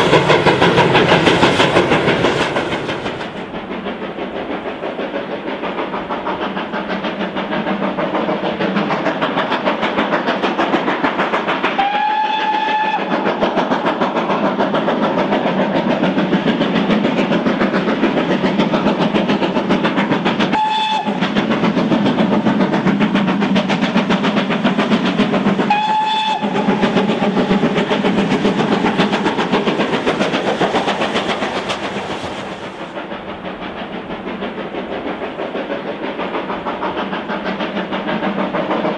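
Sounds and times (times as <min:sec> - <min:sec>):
steam locomotive chuffing: 0:00.0 - 0:38.9
steam whistle blasts: 0:11.8 - 0:13.1, 0:20.5 - 0:21.2, 0:25.7 - 0:26.6.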